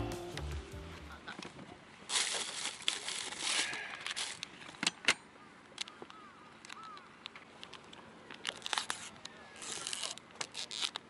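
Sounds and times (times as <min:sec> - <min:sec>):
plastic bag rustling: 0:02.0 - 0:04.5
plastic package crinkling and clicking: 0:02.1 - 0:11.0.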